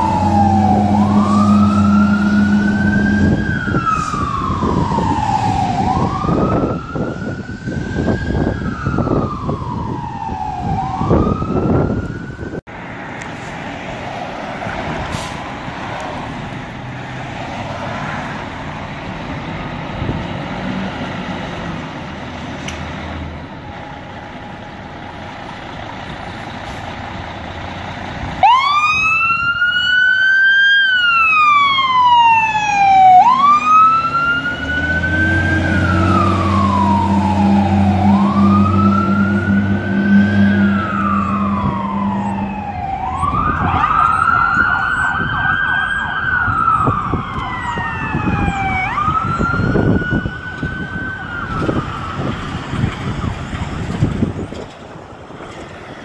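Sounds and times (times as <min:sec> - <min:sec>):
wailing siren: 0:00.0 - 0:12.6, 0:28.3 - 0:54.6
fire truck pulling out: 0:00.0 - 0:56.0
deep air horn: 0:00.1 - 0:04.3, 0:36.0 - 0:42.5.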